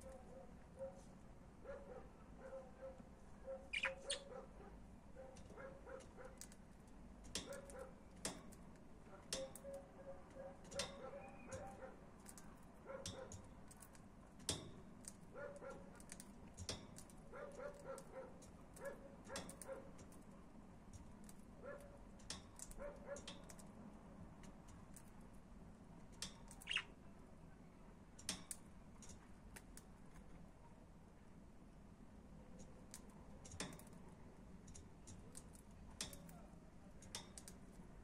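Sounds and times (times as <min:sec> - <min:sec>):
budgerigars chattering: 0:03.7 - 0:04.3, 0:26.6 - 0:26.9
sharp bird chirps: 0:03.7 - 0:04.3, 0:26.5 - 0:27.0.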